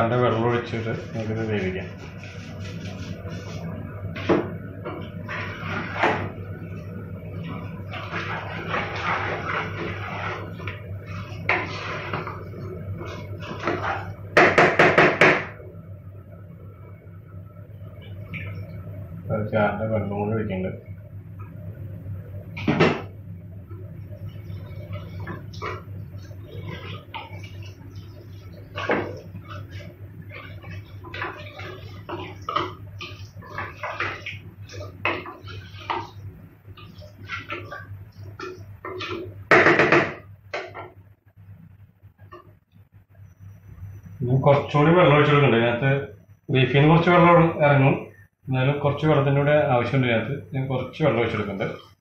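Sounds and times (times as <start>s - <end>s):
steady low hum: 0.0s - 52.0s
wooden spatula scraping a pot: 0.7s - 4.3s, 5.0s - 6.4s, 7.3s - 14.2s, 24.1s - 40.8s.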